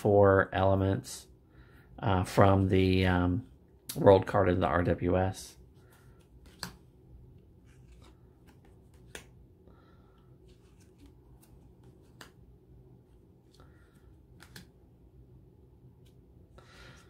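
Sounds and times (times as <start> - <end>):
cards sliding rustles: 5.7 - 9.4, 10.0 - 14.8
card snapping: 6.4 - 6.8, 7.8 - 9.4, 10.6 - 12.4, 14.3 - 14.7.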